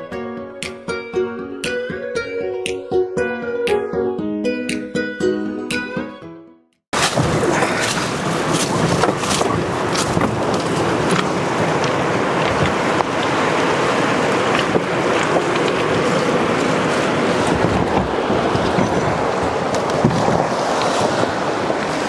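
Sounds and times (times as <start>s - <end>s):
river rapids rushing: 7.0s - 22.0s
wind on microphone: 7.0s - 22.0s.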